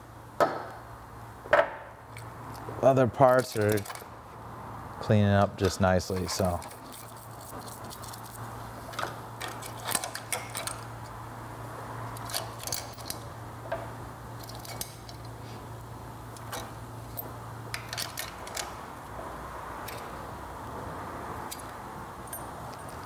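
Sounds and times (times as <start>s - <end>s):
small metal parts clinking: 3.2s - 4.1s, 5.6s - 11.1s, 12.2s - 13.3s, 14.4s - 15.4s, 16.4s - 18.8s, 21.5s - 23.0s.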